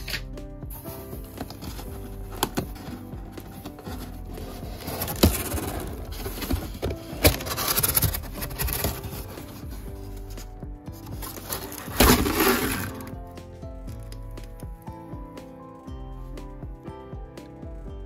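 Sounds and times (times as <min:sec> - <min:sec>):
background music: 0:00.0 - 0:18.0
plastic scraping against cardboard box: 0:01.2 - 0:09.9, 0:11.2 - 0:13.1.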